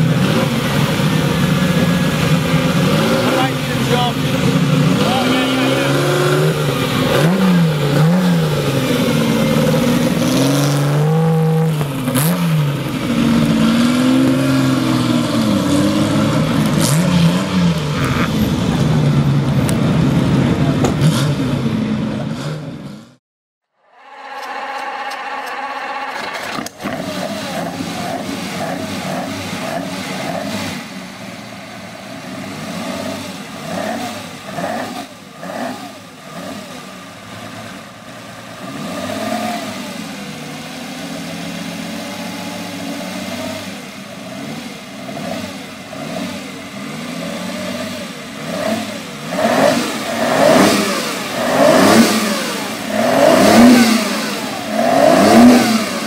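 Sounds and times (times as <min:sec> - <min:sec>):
racing car engine revving: 0:00.0 - 0:23.2, 0:23.8 - 0:56.0.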